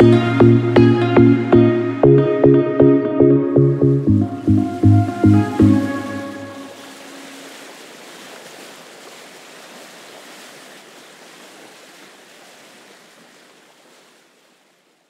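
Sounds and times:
electronic music: 0.0 - 6.7
sea surf rushing: 3.8 - 14.4.

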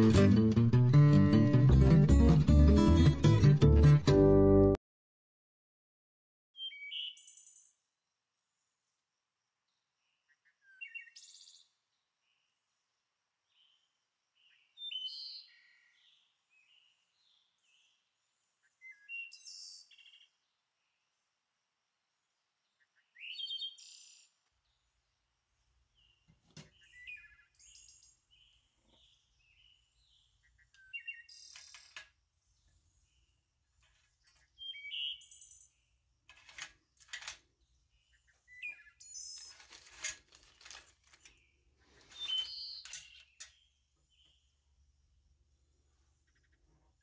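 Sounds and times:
small birds chirping: 6.6 - 7.8, 9.7 - 12.6, 13.5 - 21.4, 22.2 - 47.0.

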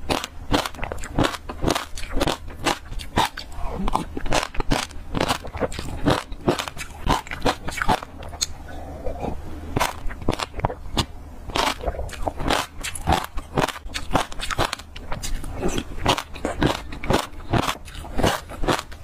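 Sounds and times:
seeds crunching being chewed: 0.0 - 19.0.

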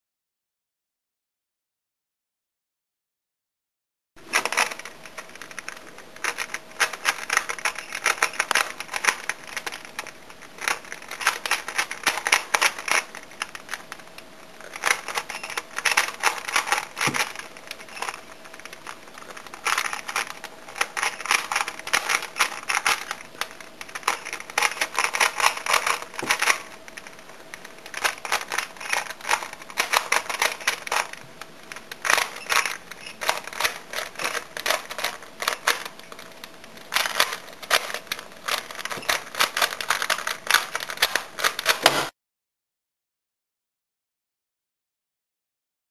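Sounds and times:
plastic puzzle cube clicking: 4.3 - 13.8, 14.6 - 41.9.

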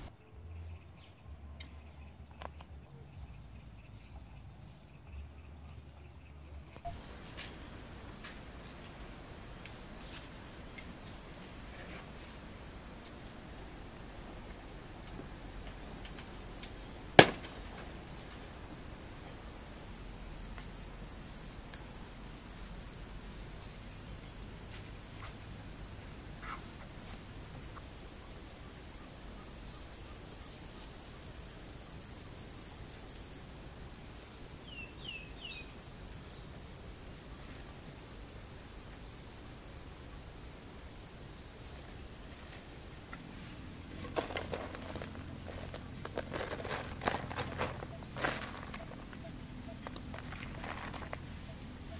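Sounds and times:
insects chirring: 0.0 - 51.9
leaf snapping: 16.0 - 18.0
soil rustling onto leaf: 42.3 - 51.9.

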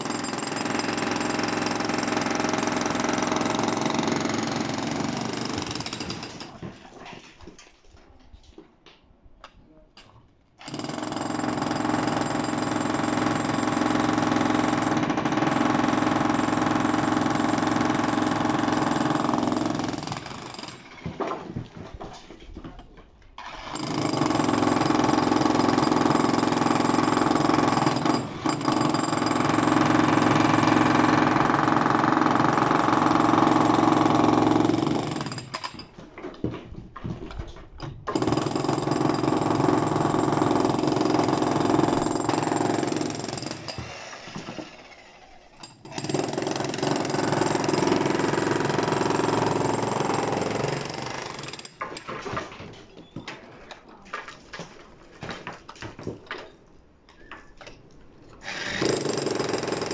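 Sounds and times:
demolition hammer breaking concrete: 0.0 - 6.8, 10.6 - 21.6, 23.6 - 36.0, 38.1 - 44.8, 45.6 - 52.7, 58.4 - 59.9.

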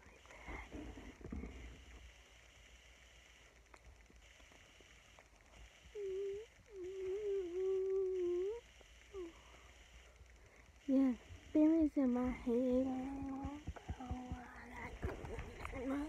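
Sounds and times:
girl humming: 5.9 - 9.6, 10.9 - 16.0.

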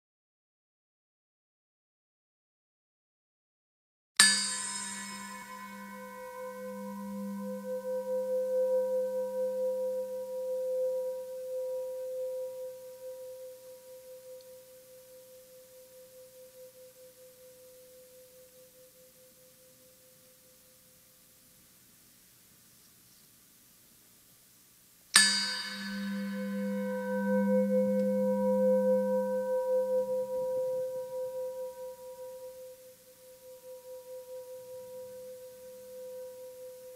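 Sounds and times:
singing bowl ringing: 4.2 - 20.6, 25.2 - 36.9.

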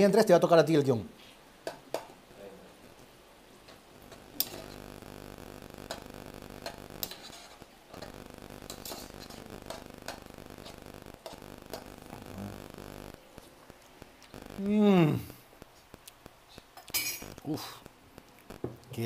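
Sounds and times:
steady low hum: 4.0 - 18.6.

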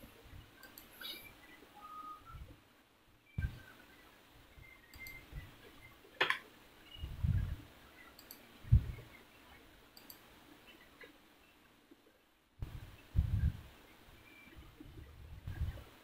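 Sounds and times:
computer mouse clicks: 0.6 - 1.3, 4.9 - 5.3, 8.0 - 9.1, 10.0 - 10.3.

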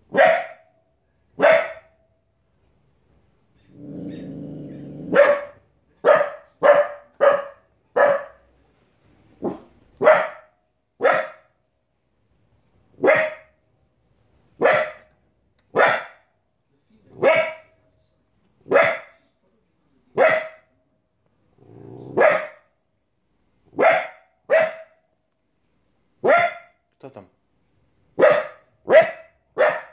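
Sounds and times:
puppy barking: 0.1 - 0.7, 1.4 - 2.0, 5.1 - 8.5, 9.4 - 11.5, 13.0 - 13.6, 14.6 - 15.1, 15.7 - 16.3, 17.2 - 17.7, 18.7 - 19.2, 20.2 - 20.7, 22.1 - 22.7, 23.7 - 25.0, 26.2 - 26.8, 28.2 - 29.9.

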